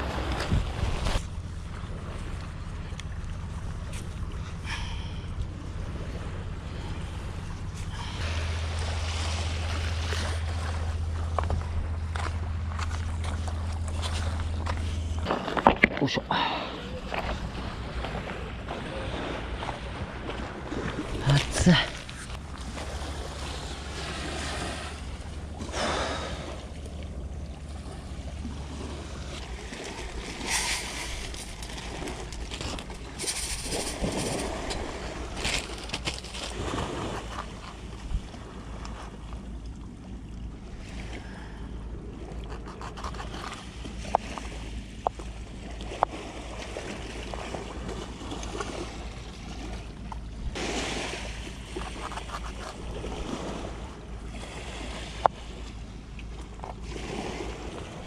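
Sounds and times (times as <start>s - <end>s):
waves washing: 0.0s - 58.0s
wind rumbling: 0.0s - 58.0s.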